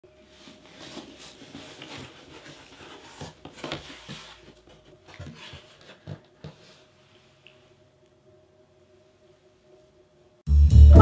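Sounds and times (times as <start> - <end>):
cardboard box rustling and scraping: 0.4 - 6.9.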